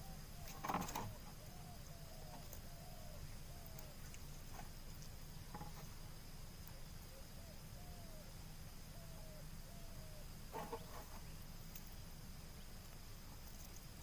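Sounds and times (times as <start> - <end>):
low background noise: 0.0 - 14.0
faint whistled bird calls: 7.1 - 8.3, 8.9 - 11.2.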